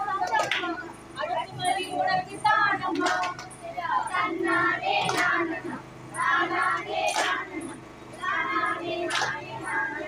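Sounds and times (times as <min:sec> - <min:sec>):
women and girls singing: 0:00.0 - 0:10.0
group hand clap: 0:00.2 - 0:00.7, 0:02.9 - 0:03.5, 0:05.0 - 0:05.4, 0:06.7 - 0:07.4, 0:08.9 - 0:09.6.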